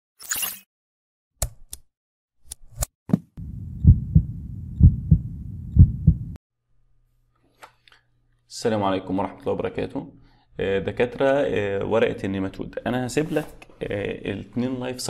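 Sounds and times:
heartbeat thumps: 0:03.2 - 0:06.4.

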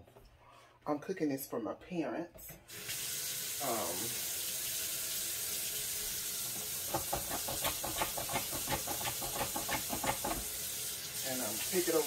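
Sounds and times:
faucet running into sink: 0:02.7 - 0:12.0.

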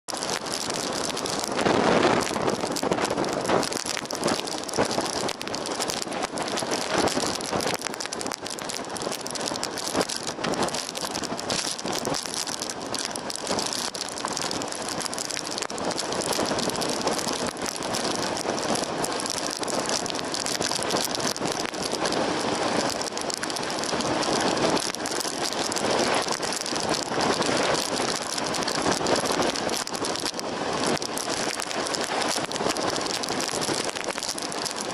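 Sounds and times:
wind buffeting microphone: 0:00.2 - 0:34.9.

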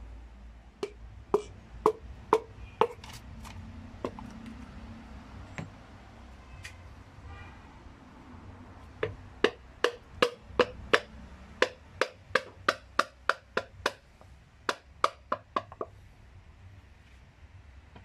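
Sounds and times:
hammer handle knocking piston: 0:00.8 - 0:03.0, 0:09.0 - 0:14.0, 0:14.7 - 0:15.9.

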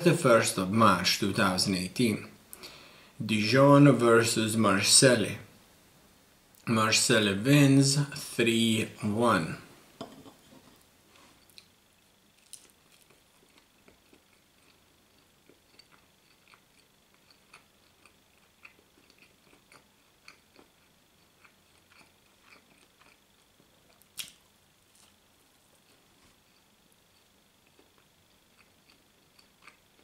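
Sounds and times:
person chewing: 0:12.4 - 0:30.0.

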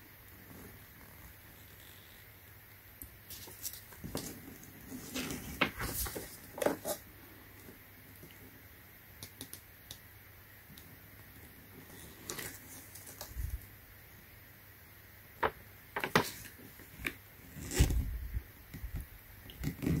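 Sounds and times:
paper pages turning: 0:03.3 - 0:07.0.

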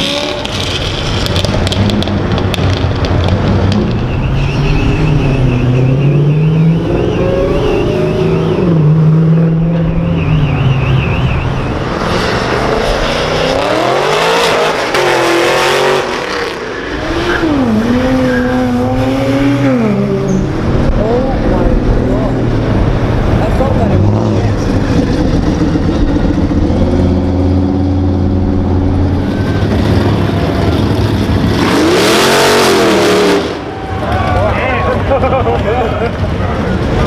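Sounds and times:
car engines revving: 0:00.0 - 0:37.0
tyre squeal: 0:03.9 - 0:08.6.

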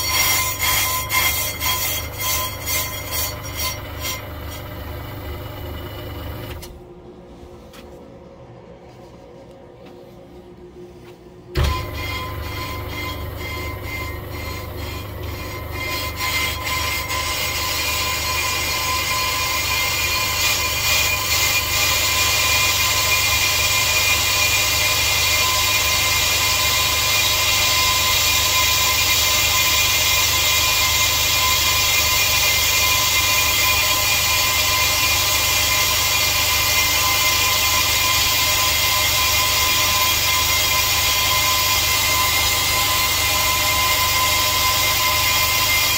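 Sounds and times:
brake lathe machining disc: 0:00.0 - 0:06.6, 0:11.6 - 0:45.9
motor hum: 0:03.6 - 0:06.8.

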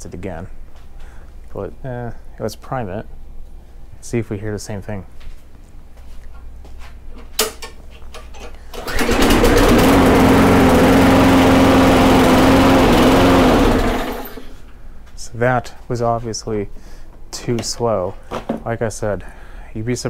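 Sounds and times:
lawn mower engine running: 0:08.8 - 0:14.5.

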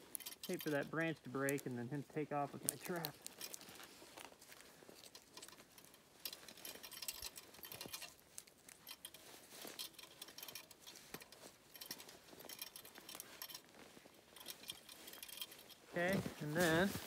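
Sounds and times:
small clicks and scrapes: 0:00.0 - 0:17.0.

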